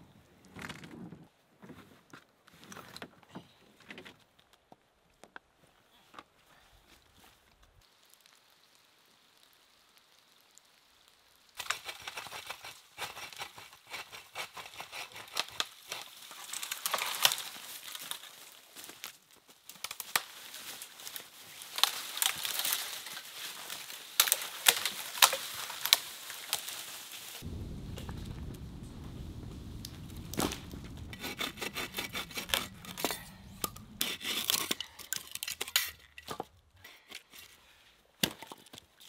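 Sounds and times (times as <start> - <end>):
dry branches snapping: 15.3 - 36.5
dry leaves crunching: 16.0 - 28.8.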